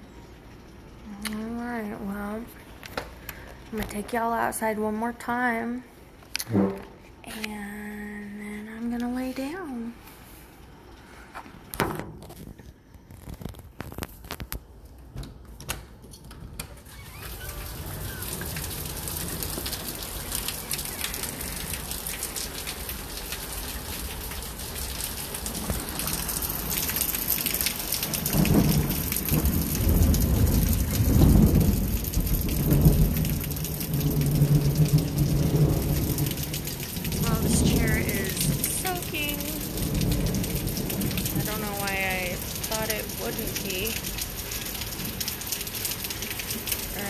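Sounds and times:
heavy rain hissing: 16.8s - 47.0s
deep thunder rumbling: 17.3s - 47.0s.

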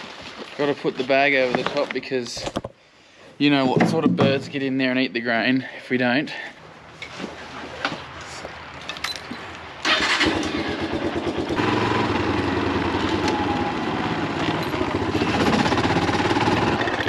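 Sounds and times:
motorbike engine running: 10.3s - 17.0s.

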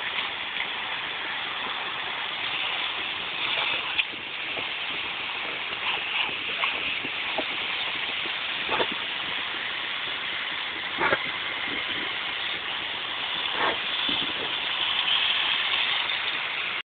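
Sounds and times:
dog biting at water spray: 13.5s - 14.5s.

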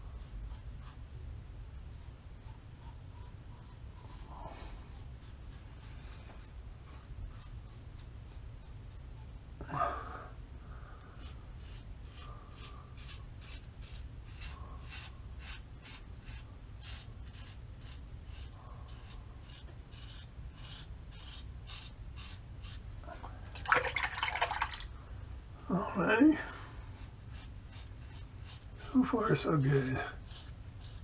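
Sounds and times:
razor scraping stubble: 11.0s - 22.8s, 26.9s - 31.0s
water splashing in a sink: 23.5s - 24.9s.

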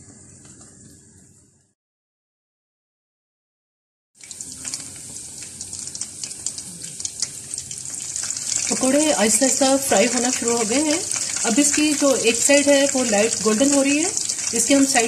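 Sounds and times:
batter sizzling in hot oil: 4.2s - 15.0s.

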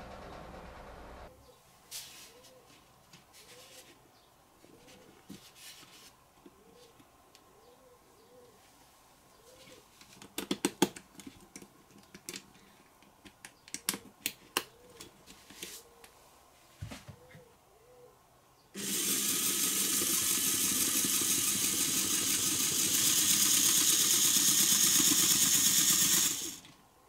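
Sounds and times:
plastic parts clicking together: 10.0s - 15.1s.

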